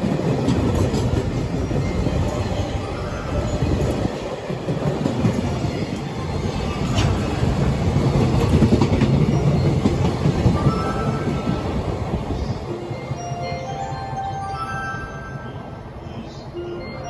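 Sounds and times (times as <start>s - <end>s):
clickety-clack over rail joints: 0.0s - 2.6s, 3.4s - 12.1s
train wheels rumbling on rails: 0.0s - 13.7s.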